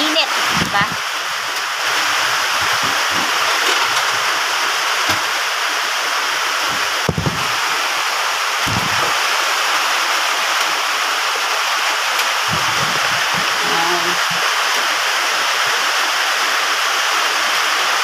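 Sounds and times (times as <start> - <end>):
heavy rain on metal roof: 0.0 - 18.0
dull knocks: 6.7 - 7.4.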